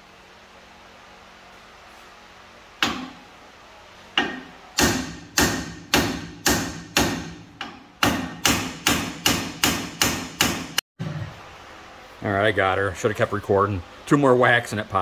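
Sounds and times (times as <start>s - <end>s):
hammer striking metal: 2.8s - 3.2s, 4.2s - 10.8s.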